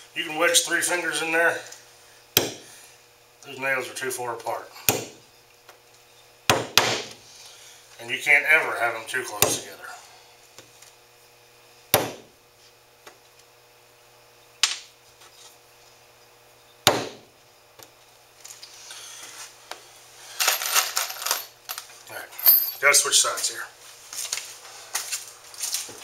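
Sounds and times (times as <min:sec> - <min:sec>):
hammer blows driving nails: 0:02.4 - 0:02.7, 0:04.9 - 0:05.2, 0:06.5 - 0:07.2, 0:09.4 - 0:09.6, 0:11.9 - 0:12.3, 0:16.8 - 0:17.3
loose nails clinking: 0:20.4 - 0:22.9.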